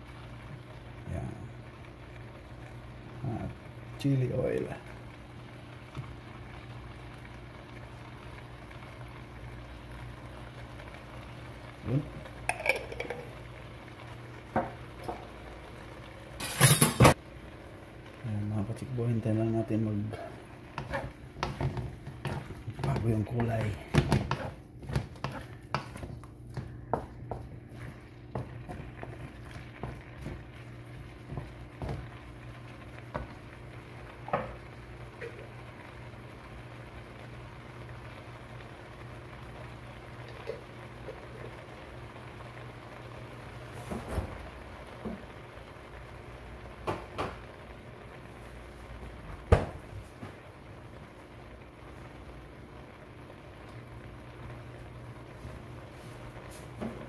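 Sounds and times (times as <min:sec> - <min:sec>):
shrimp sizzling in butter: 0:00.0 - 0:57.0
utensil clinking on pan: 0:12.5 - 0:13.3.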